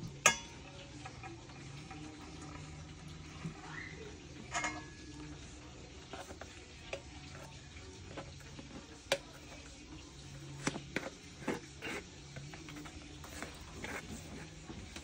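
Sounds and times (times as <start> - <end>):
spoon scraping inside plastic jar: 10.6 - 14.6.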